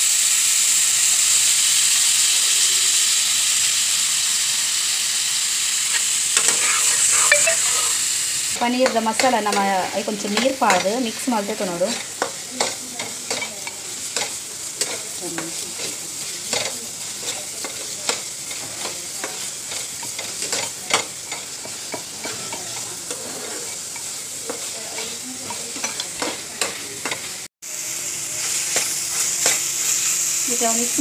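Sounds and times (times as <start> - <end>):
steady hiss: 0.0 - 8.6
peas frying in a pan: 0.0 - 31.0.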